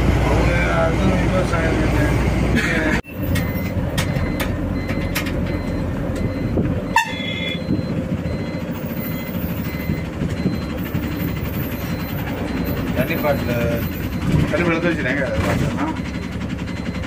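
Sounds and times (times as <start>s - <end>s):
heavy vehicle engines running: 0.0s - 17.0s
faint repeated beeping: 3.1s - 14.9s
horn toot: 6.9s - 7.6s.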